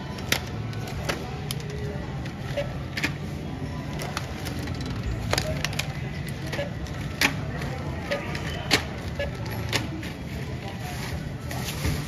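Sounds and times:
packages and cart clicking: 0.0 - 12.0
supermarket checkout hum: 0.0 - 12.0.

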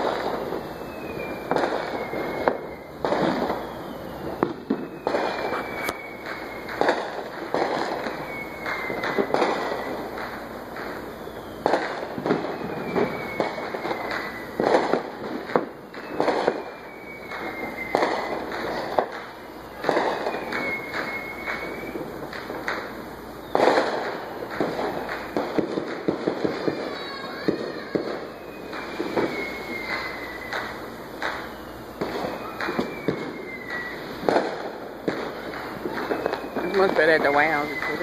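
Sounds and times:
fireworks bangs and pops: 0.0 - 38.0
faint falling whistle: 0.6 - 7.0, 7.6 - 10.1, 11.2 - 18.5, 19.8 - 22.1, 26.3 - 34.5, 36.0 - 38.0.

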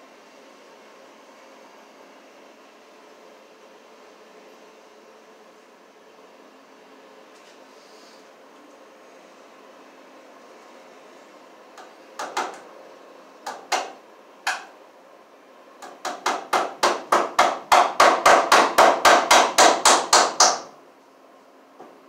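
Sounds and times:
hammer striking staples into wood: 12.2 - 12.6, 13.5 - 14.7, 15.8 - 20.7.

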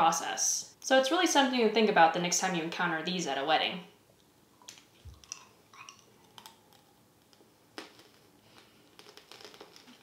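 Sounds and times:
sugared almond crunching: 4.6 - 10.0.

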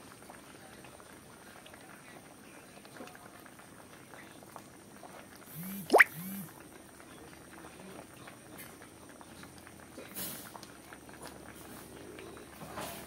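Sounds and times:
curry bubbling in a wok: 0.0 - 13.0.

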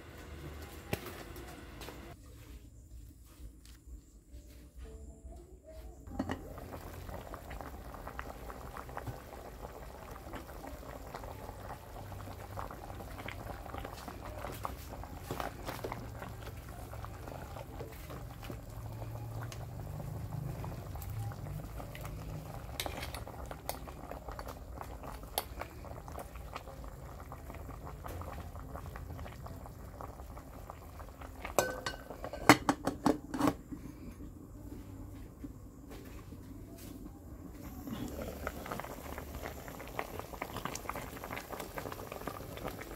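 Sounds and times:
pot boiling with bubbling crackle: 0.0 - 2.3, 5.9 - 42.9
metal lid clanking against pot: 31.6 - 33.6.

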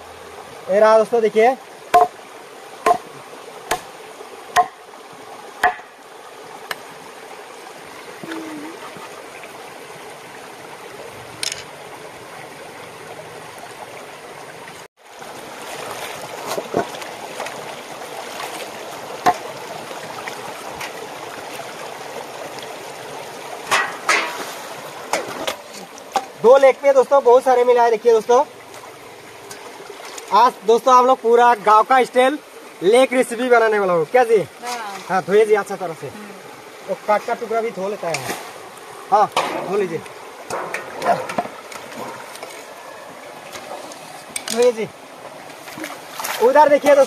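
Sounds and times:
stream rushing: 0.0 - 47.0
knife chopping on wooden board: 1.9 - 2.1, 2.8 - 3.1, 3.7 - 3.9, 5.6 - 5.9
water splashing into pot: 23.6 - 26.4.

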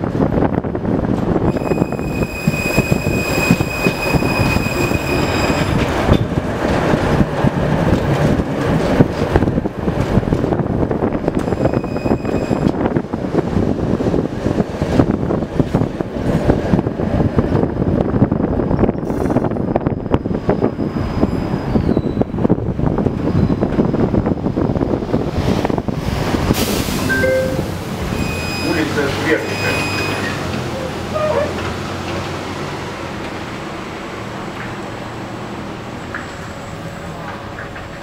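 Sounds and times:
tram rumbling on rails: 0.0 - 38.0
high-pitched wheel squeal: 1.5 - 5.9, 11.4 - 12.7, 19.6 - 22.4, 23.2 - 23.7, 27.0 - 31.5.

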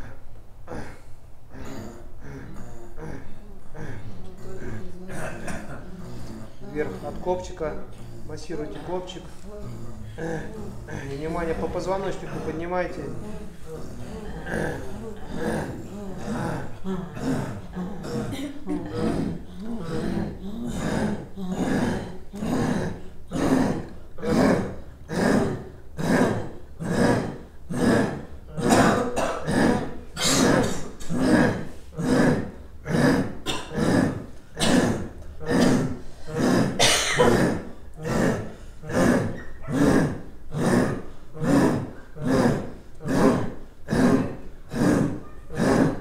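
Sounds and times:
guttural throat-singing pulses: 0.0 - 46.0.

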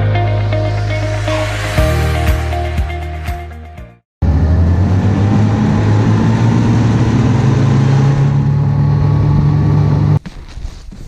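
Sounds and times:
snowmobile engine running: 4.2 - 10.2.

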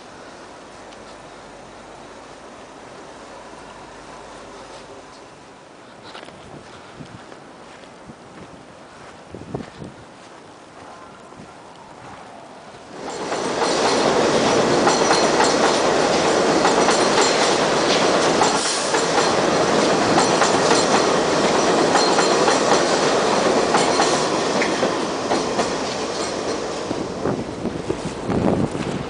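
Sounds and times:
train running on steel track: 0.0 - 5.8, 10.7 - 29.0
wheels clicking on rails: 12.8 - 27.0.

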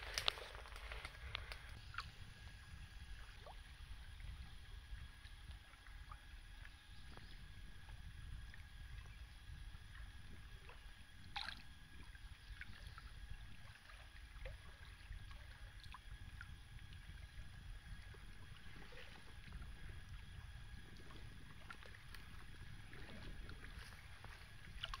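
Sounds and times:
low wind rumble on microphone: 0.0 - 25.0
waves lapping against canoe: 17.0 - 25.0.

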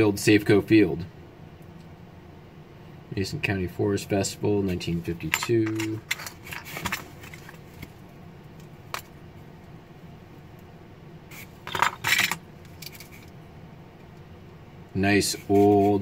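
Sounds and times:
metal pins clicking and clattering: 5.2 - 7.6, 11.6 - 13.3.

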